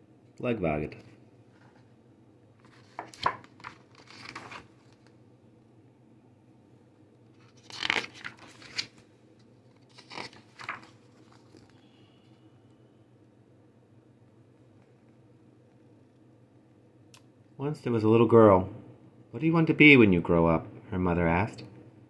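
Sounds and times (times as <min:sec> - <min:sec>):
paper pages turning: 0:02.6 - 0:05.2, 0:07.4 - 0:11.8.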